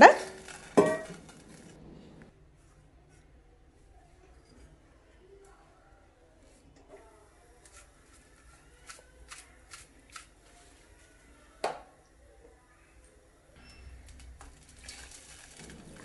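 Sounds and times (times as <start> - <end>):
kitchenware clicks and taps: 0.4 - 1.5.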